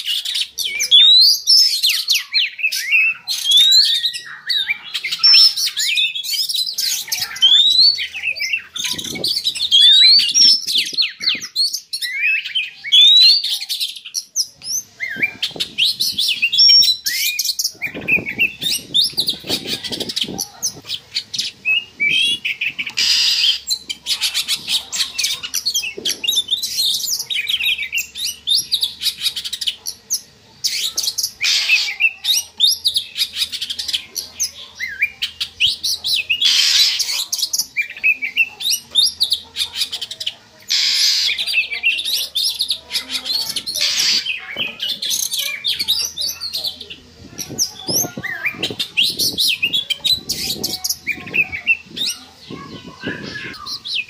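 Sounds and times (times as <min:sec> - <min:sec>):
bird song whistles and chirps: 0:00.0 - 0:39.4
scratchy bird clicking calls: 0:14.6 - 0:34.5, 0:35.2 - 0:46.5
harsh rasping bird notes: 0:14.8 - 0:29.3, 0:40.7 - 0:46.5.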